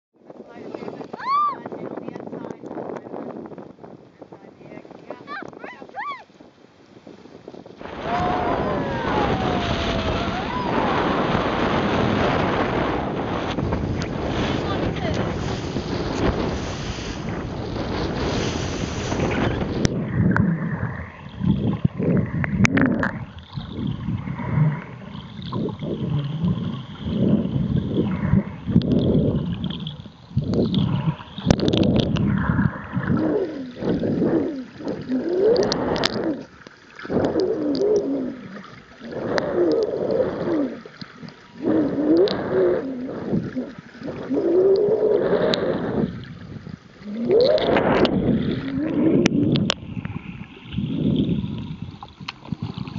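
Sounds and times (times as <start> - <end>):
gurgling water: 0.2 - 52.9
wind on microphone: 0.2 - 52.9
whale song moaning calls: 7.8 - 13.3, 19.2 - 46.4, 47.0 - 49.8.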